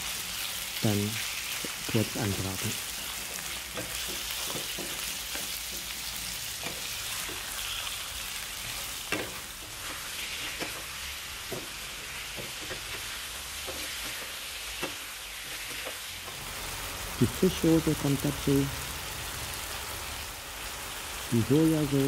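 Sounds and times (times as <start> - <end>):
chicken sizzling in hot oil: 0.0 - 22.0
spatulas scraping and tapping pan: 3.3 - 6.0, 8.6 - 16.0.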